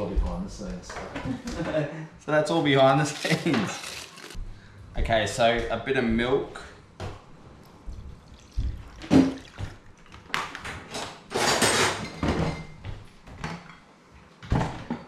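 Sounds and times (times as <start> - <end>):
kitchen utensils clattering: 10.5 - 12.8.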